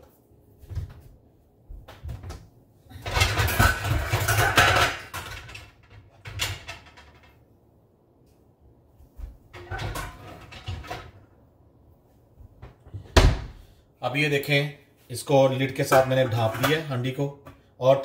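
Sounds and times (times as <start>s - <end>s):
pots and pans clattering: 3.0s - 7.3s, 9.5s - 11.2s, 15.9s - 16.9s.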